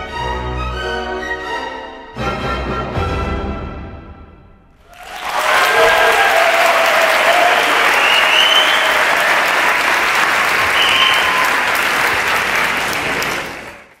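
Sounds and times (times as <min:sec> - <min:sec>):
high cheers: 0:04.8 - 0:13.8
audience applauding: 0:04.8 - 0:14.0.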